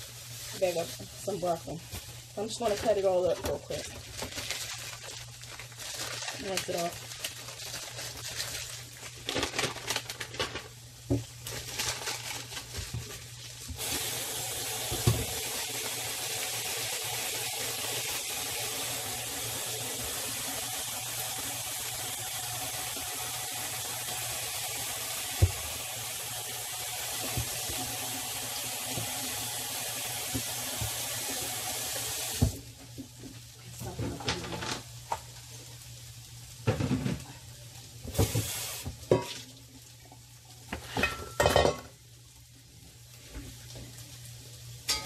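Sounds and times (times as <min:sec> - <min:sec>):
tap water running into sink: 0:13.8 - 0:32.6, 0:38.1 - 0:39.5.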